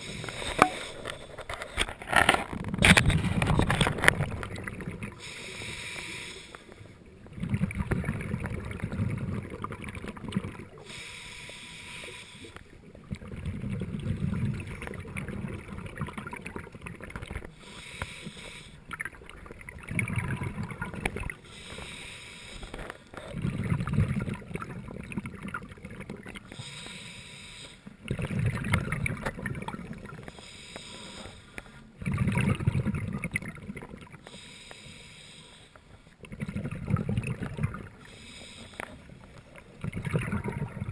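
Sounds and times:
regulator hissing inhale: 0.0s - 1.4s, 5.2s - 7.0s, 10.8s - 12.6s, 17.5s - 18.8s, 21.4s - 23.2s, 26.5s - 27.9s, 30.3s - 31.9s, 34.2s - 36.2s, 38.0s - 39.5s
exhaled bubbles rumbling: 2.4s - 5.3s, 7.0s - 10.9s, 12.7s - 17.6s, 18.9s - 21.4s, 23.2s - 26.5s, 28.0s - 30.3s, 31.9s - 34.2s, 36.2s - 38.1s, 39.0s - 40.9s.

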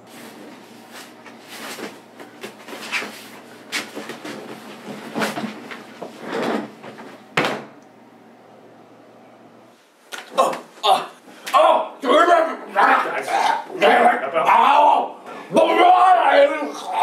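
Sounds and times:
scuffing and rustling of furniture: 0.0s - 7.3s.

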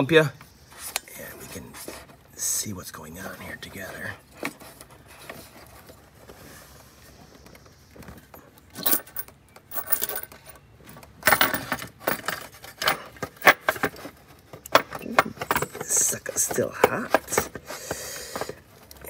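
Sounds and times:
metal clicks and clinks: 8.8s - 10.6s.

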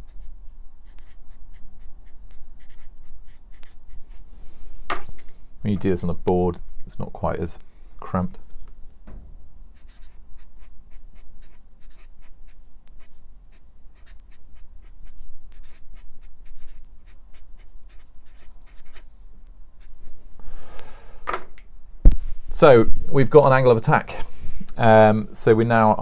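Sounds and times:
felt-tip marker writing on paper: 0.0s - 4.2s, 9.8s - 19.0s, 19.8s - 20.2s.

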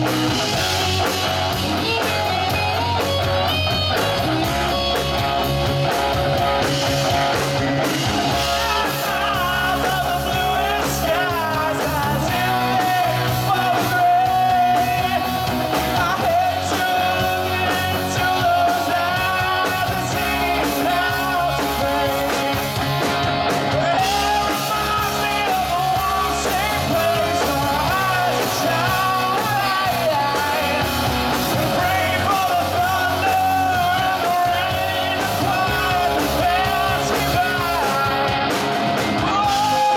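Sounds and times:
rock band playing: 0.0s - 39.9s
man singing: 8.2s - 39.9s.

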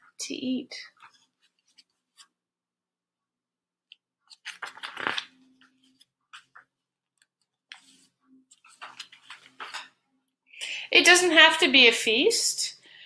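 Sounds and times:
paper pages rustling: 1.0s - 2.4s, 4.2s - 9.9s.

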